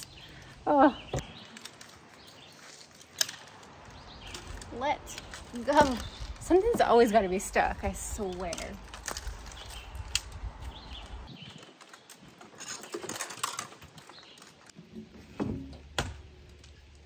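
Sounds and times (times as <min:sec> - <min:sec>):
fishing tackle clicks and rattles: 0:11.7 - 0:14.6.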